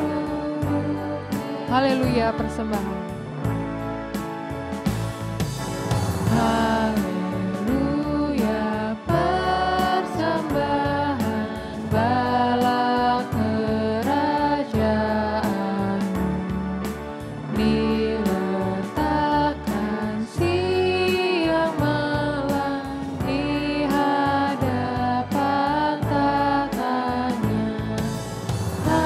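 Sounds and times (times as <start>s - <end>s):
keyboard with beat: 0.0s - 29.0s
choir singing a hymn: 6.3s - 16.0s, 22.6s - 29.0s.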